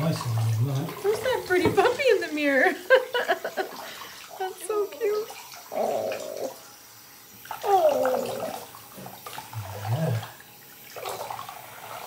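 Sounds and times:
water sloshing in a sink: 0.0s - 12.0s.

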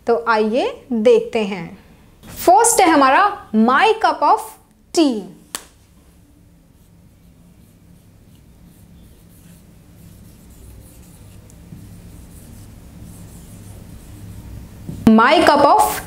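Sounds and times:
low room hum: 0.0s - 16.0s
marker scratching on whiteboard: 6.7s - 16.0s.

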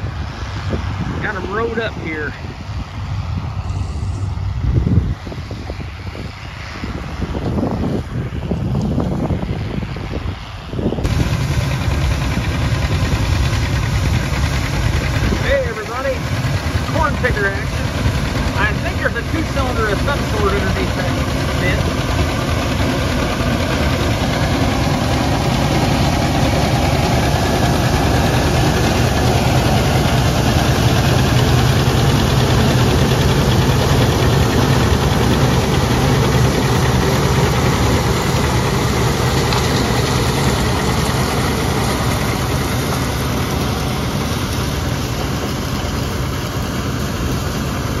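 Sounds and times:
tractor engine drone: 0.0s - 48.0s
corn picker machinery running: 1.1s - 2.4s, 11.0s - 48.0s.

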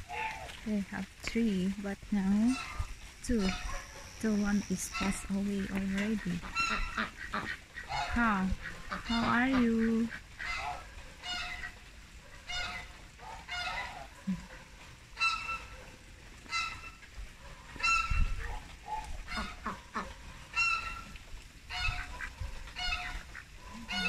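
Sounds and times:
ducks quacking: 2.3s - 15.8s, 16.4s - 24.0s.

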